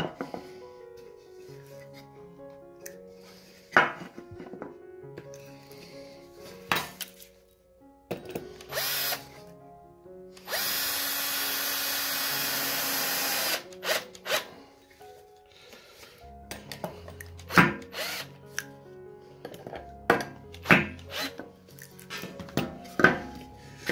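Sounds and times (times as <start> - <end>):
cordless drill driving screw: 8.7 - 9.3, 10.4 - 14.5, 17.5 - 18.3, 21.0 - 21.4.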